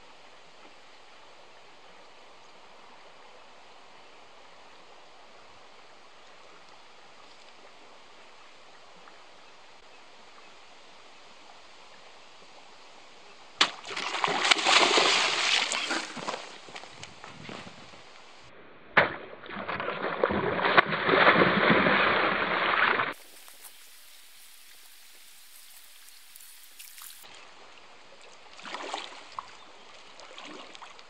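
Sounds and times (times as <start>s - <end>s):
fish splashing in water: 13.8s - 16.3s.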